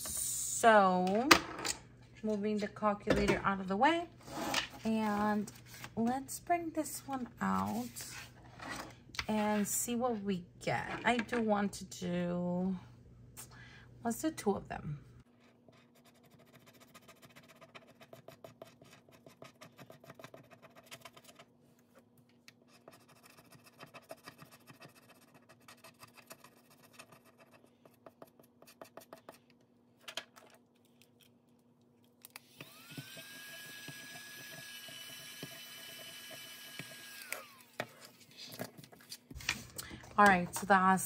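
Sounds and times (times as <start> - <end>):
scratching on a scratch card: 15.4 - 21.5, 22.6 - 29.5
small electric motor whirring: 32.3 - 37.8.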